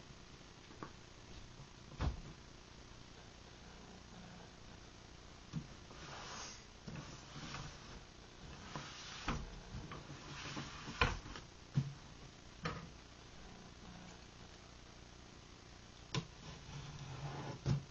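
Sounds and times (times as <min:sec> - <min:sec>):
cardboard brushing and scraping: 0:05.9 - 0:11.4, 0:16.4 - 0:17.9.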